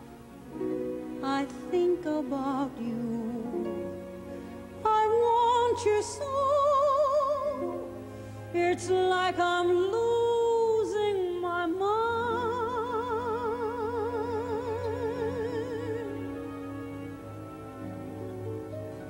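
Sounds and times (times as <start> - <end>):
soft orchestral accompaniment: 0.0 - 19.0
woman singing a slow ballad: 1.2 - 3.7, 4.8 - 7.8, 8.5 - 16.2.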